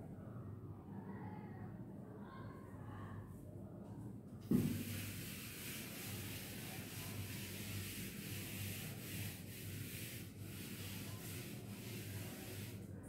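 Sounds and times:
duster rubbing on chalkboard: 4.5s - 12.9s.

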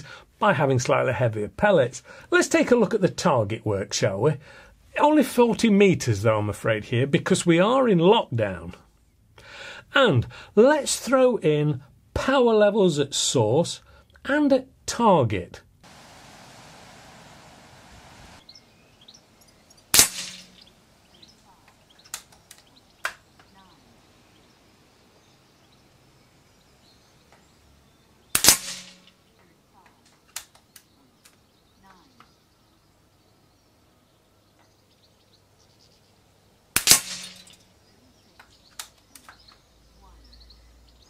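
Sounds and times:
faint birdsong: 0.0s - 10.4s, 15.8s - 41.0s
air rifle shot: 19.9s - 20.7s, 28.4s - 29.1s, 36.8s - 37.6s.

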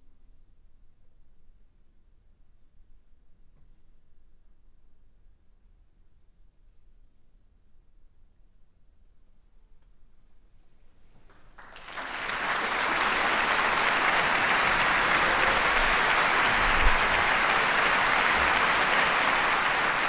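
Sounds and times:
audience applauding: 11.3s - 20.0s.

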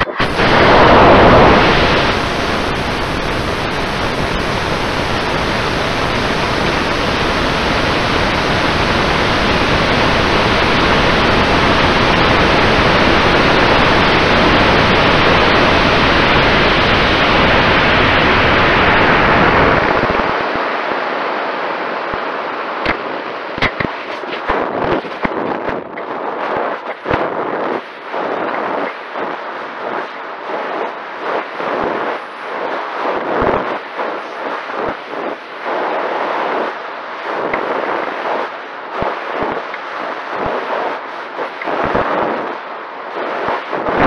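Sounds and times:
rushing exhaust and air: 0.0s - 20.7s.

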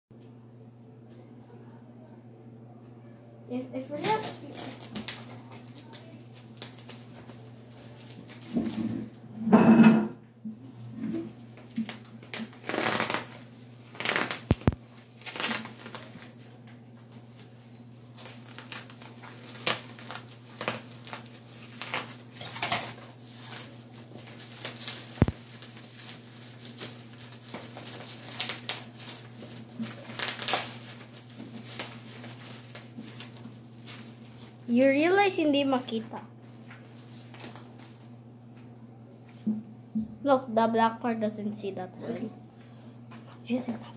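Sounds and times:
bubble wrap crinkling: 3.9s - 9.2s, 10.9s - 39.3s
scissors cutting plastic: 11.5s - 16.3s, 18.2s - 34.5s.

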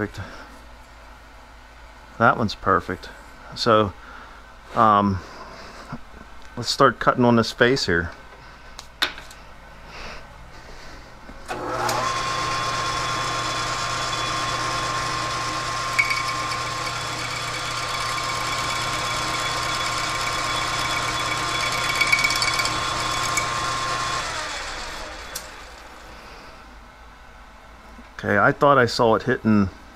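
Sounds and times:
lathe motor hum and whine: 11.5s - 26.5s.

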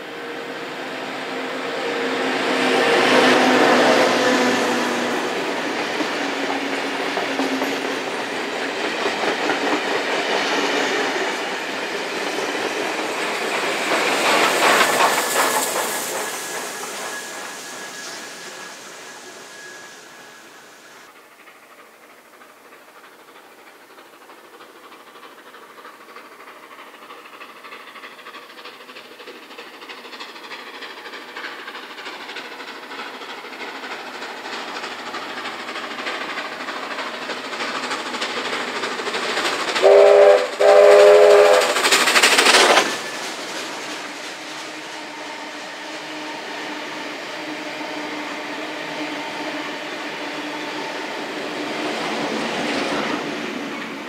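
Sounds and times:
carriages rumbling over rails: 0.0s - 54.0s
steam locomotive approaching: 0.0s - 54.0s
steam whistle blasts: 39.8s - 42.0s.

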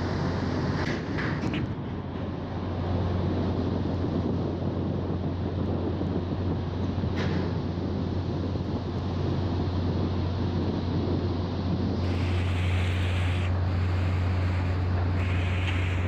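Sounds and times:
low hum of ship engines: 0.0s - 16.0s
wind buffeting microphone: 0.0s - 16.0s
hiss of rushing water: 11.9s - 16.0s.

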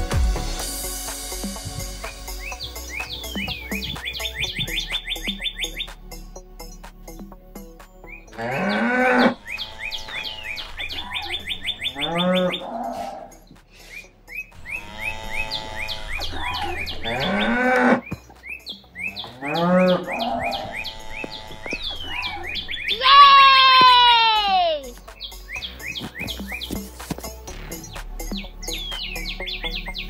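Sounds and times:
birds chirping: 1.3s - 30.0s
cows mooing: 8.3s - 13.5s, 14.6s - 18.2s, 19.1s - 23.9s.

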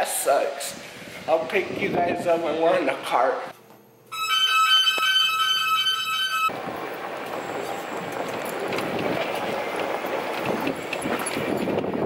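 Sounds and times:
steady electronic tones: 4.1s - 6.5s
golf cart rattling along: 5.1s - 12.0s.

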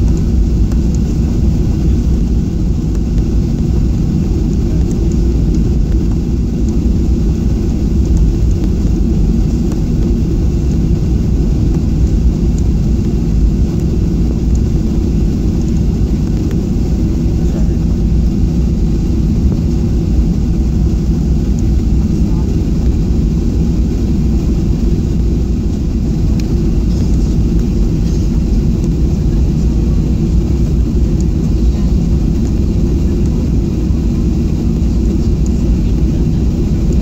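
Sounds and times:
jet engine drone in cabin: 0.0s - 37.0s.

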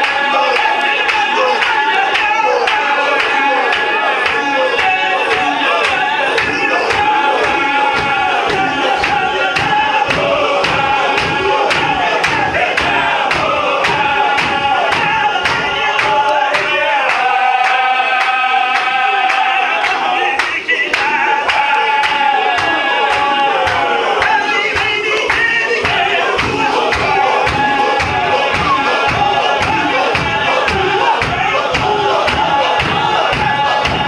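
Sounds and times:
male chorus chanting: 0.0s - 34.0s
deep drum beat: 5.3s - 16.7s, 25.8s - 34.0s.

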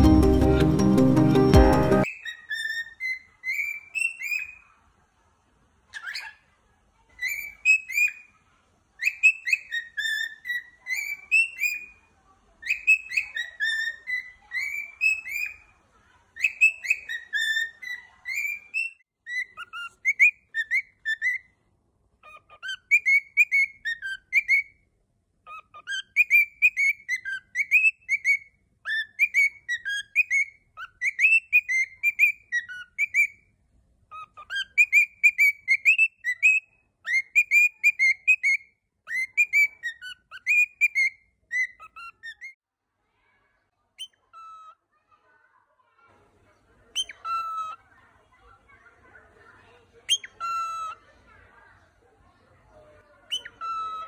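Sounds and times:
cockatiel whistling: 1.6s - 4.6s, 7.2s - 8.3s, 9.0s - 12.0s, 12.6s - 15.7s, 16.4s - 21.5s, 22.3s - 24.7s, 25.5s - 33.4s, 34.1s - 42.6s, 46.9s - 47.8s, 50.1s - 51.0s, 53.3s - 54.0s.

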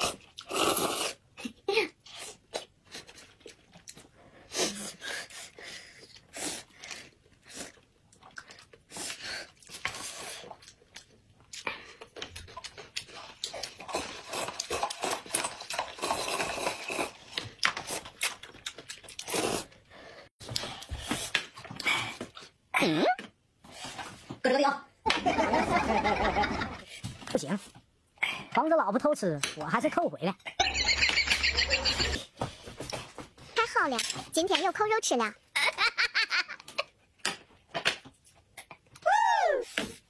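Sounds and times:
slurping noodles: 0.0s - 1.2s, 13.2s - 18.4s, 19.2s - 19.8s.

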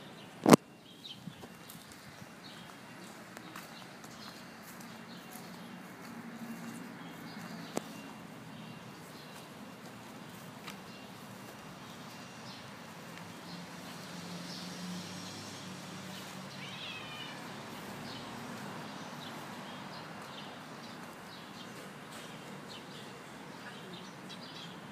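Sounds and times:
outdoor background hiss: 0.0s - 24.9s
cat meowing: 16.5s - 17.5s.

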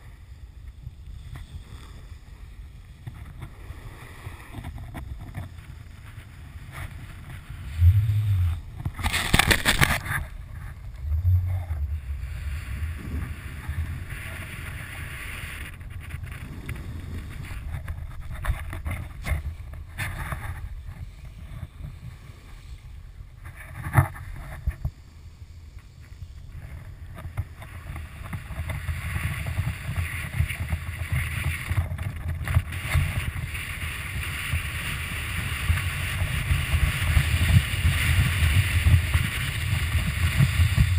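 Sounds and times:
wind rumble on microphone: 0.0s - 40.9s
loud scraping: 7.7s - 12.1s
snowboard hissing on snow: 12.0s - 17.7s, 32.7s - 40.9s.

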